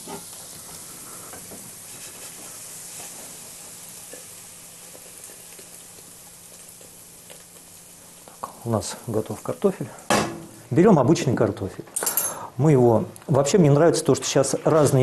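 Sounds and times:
fried potatoes sizzling: 0.0 - 11.5.

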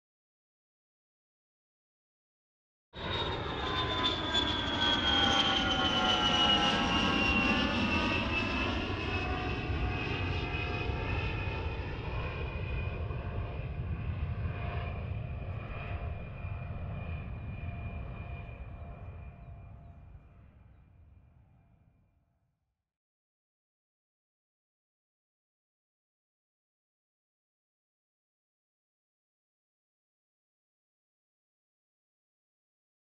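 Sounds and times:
aircraft engine drone passing overhead: 3.0 - 22.1.

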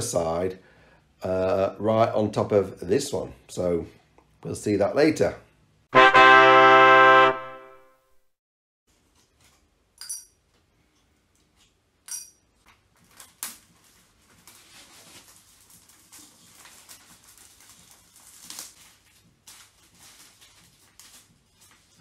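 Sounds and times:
cellophane rustling: 12.8 - 22.0.

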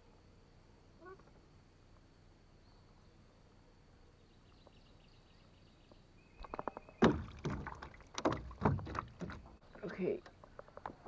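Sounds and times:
faint high steady tone: 0.0 - 6.2.

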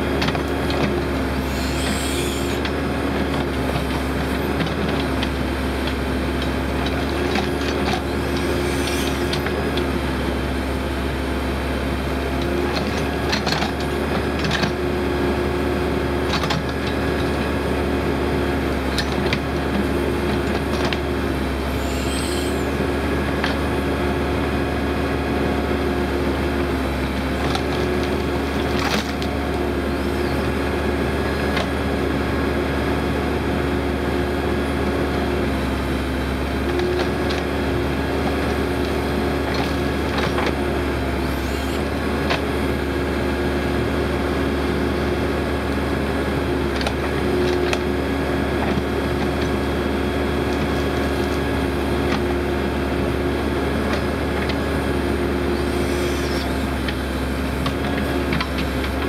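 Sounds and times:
diesel backhoe engine running: 0.0 - 59.0.

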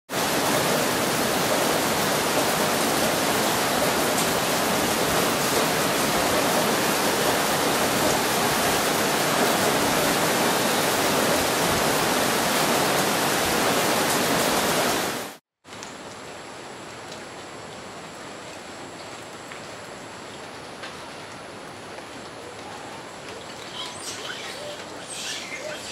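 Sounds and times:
rushing water: 0.1 - 25.9
even hiss: 23.5 - 25.9.

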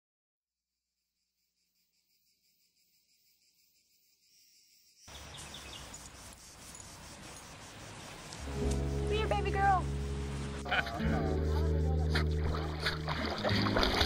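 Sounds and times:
insects chirring: 0.9 - 12.8
outdoor background hiss: 1.2 - 12.1.

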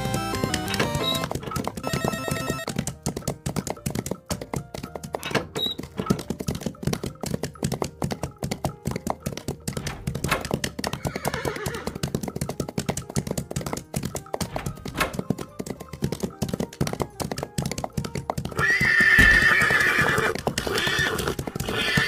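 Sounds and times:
horses galloping: 0.0 - 22.0
horse neighing: 10.9 - 12.1, 18.5 - 22.0.

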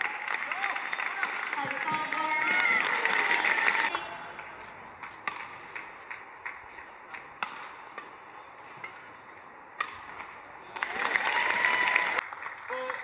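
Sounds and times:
rackets striking shuttlecock: 3.9 - 11.2.

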